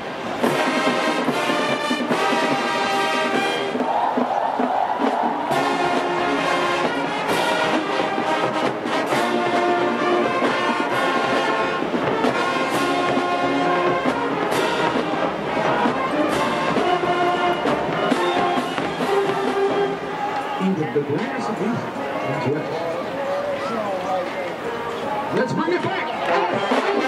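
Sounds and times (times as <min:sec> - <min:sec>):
brass section playing chords: 0:00.4 - 0:04.1, 0:05.0 - 0:23.4, 0:24.6 - 0:27.0
drum and cymbal strikes: 0:00.4 - 0:20.0.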